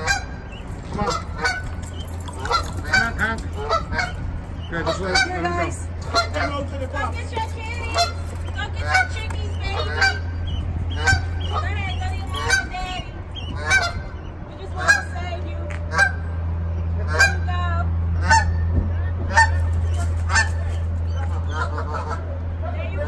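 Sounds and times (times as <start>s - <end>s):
geese honking: 0.0s - 23.0s
low hum: 0.0s - 23.0s.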